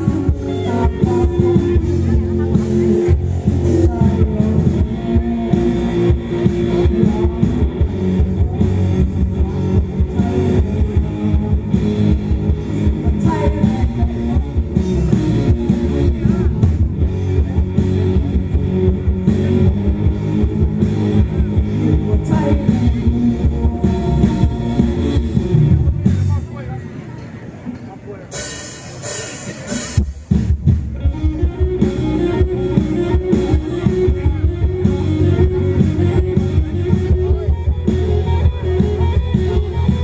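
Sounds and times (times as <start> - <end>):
woman singing: 0.0 - 16.4, 21.8 - 25.2
electric guitars: 0.0 - 26.5, 28.4 - 40.0
drums: 0.0 - 40.0.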